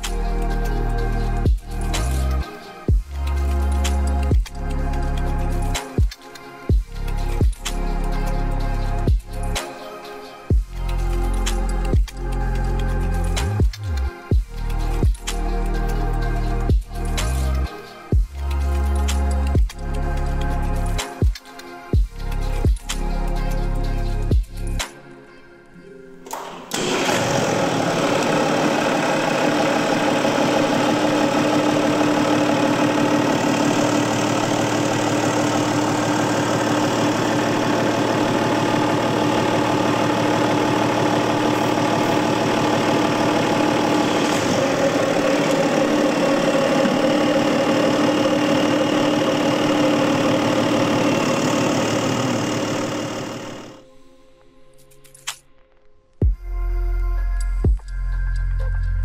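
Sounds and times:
diesel engine idling: 0:26.8 - 0:53.8.

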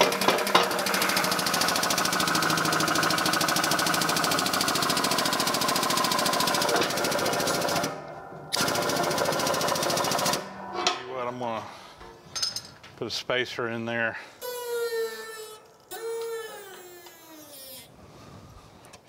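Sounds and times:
air pump chattering rapidly: 0:00.0 - 0:07.9.

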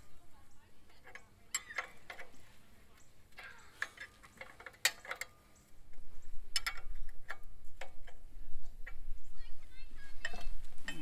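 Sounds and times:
wrench clicking on nuts: 0:06.5 - 0:08.2.

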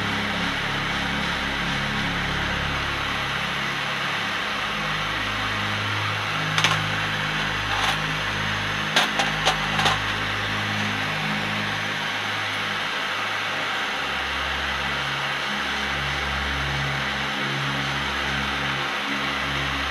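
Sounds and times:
metal cases clinking in tray: 0:06.5 - 0:08.1, 0:09.0 - 0:10.2.

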